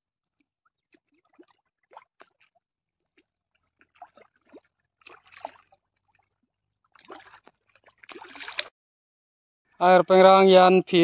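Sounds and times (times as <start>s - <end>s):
water splashing and sloshing: 0.2s - 8.8s.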